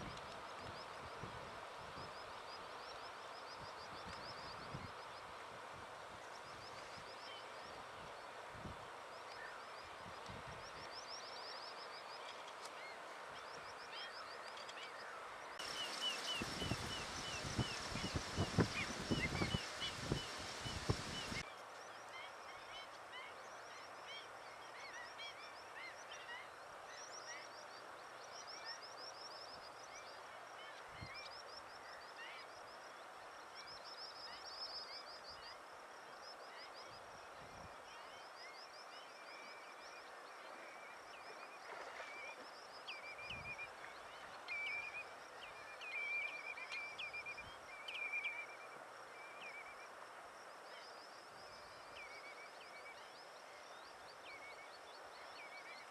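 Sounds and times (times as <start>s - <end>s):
soft outdoor hiss: 0.0s - 55.9s
birds chirping: 15.6s - 21.4s.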